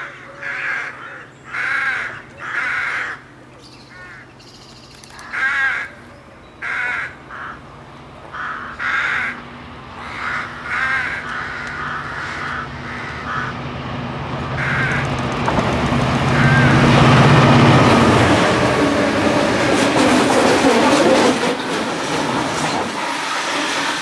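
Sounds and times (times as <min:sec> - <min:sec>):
rooks cawing: 0:00.0 - 0:04.4, 0:05.2 - 0:07.7, 0:08.3 - 0:13.6, 0:14.6 - 0:15.2, 0:16.3 - 0:17.1
diesel locomotive engine hum: 0:00.0 - 0:24.0.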